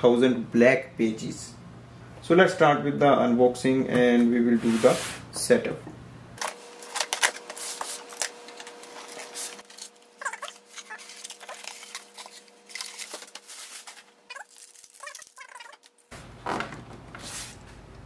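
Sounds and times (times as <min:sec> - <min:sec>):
cardboard and plastic wrap rustling: 0:06.4 - 0:17.8
foam packing squeaking: 0:08.8 - 0:17.6.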